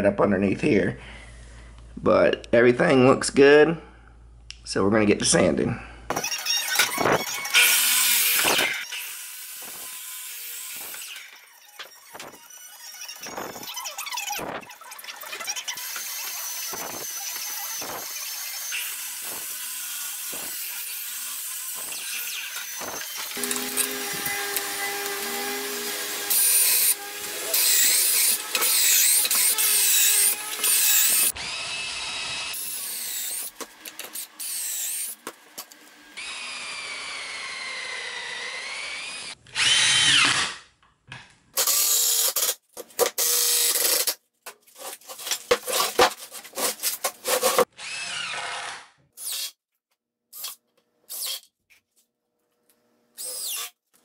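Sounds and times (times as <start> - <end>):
cordless drill boring holes: 6.1 - 35.2, 36.2 - 40.6, 41.6 - 44.2, 47.3 - 49.6, 50.4 - 51.5, 53.2 - 53.8
miter saw cutting boards: 6.1 - 40.6, 41.6 - 49.5.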